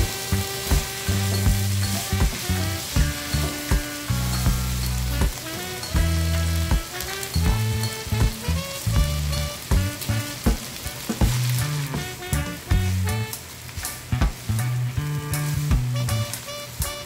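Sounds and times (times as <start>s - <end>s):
spatula stirring in pan: 0.0s - 13.8s
background music with bass notes: 0.0s - 17.0s
vegetables sizzling in oil: 0.0s - 17.0s.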